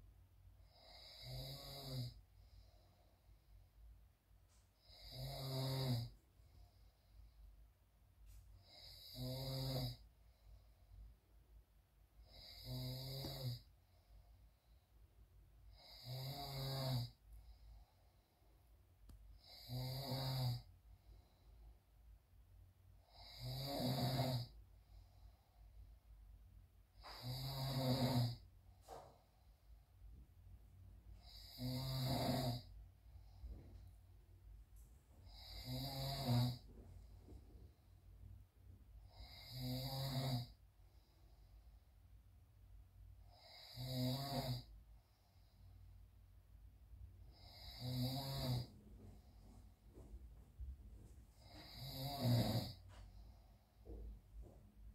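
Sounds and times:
man snoring: 0.6s - 3.0s, 4.8s - 7.1s, 8.6s - 10.1s, 12.2s - 13.7s, 15.7s - 17.8s, 19.3s - 21.3s, 23.0s - 25.2s, 27.0s - 28.5s, 31.2s - 33.9s, 35.2s - 37.2s, 39.0s - 41.1s, 43.2s - 45.6s, 47.3s - 49.4s, 51.4s - 54.1s.

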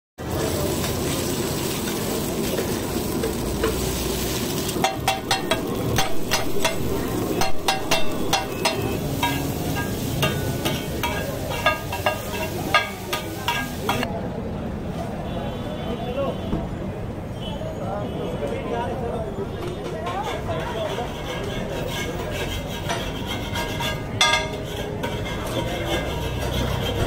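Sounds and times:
patties sizzling in oil: 0.2s - 14.1s
metal spatulas scraping griddle: 1.8s - 14.1s, 19.5s - 27.0s.

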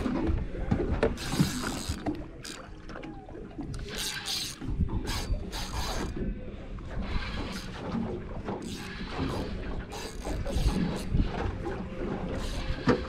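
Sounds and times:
water splashing against hull: 0.0s - 13.0s
fishing reel clicking: 1.2s - 2.7s, 3.7s - 6.2s, 8.6s - 11.1s, 12.4s - 12.9s.

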